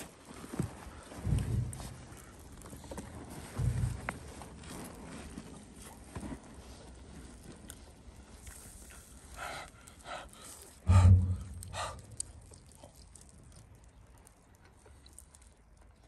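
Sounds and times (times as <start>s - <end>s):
faint outdoor background: 0.0s - 16.0s
breathy puffs of breath: 9.3s - 12.6s
loud deep thump: 10.9s - 12.2s.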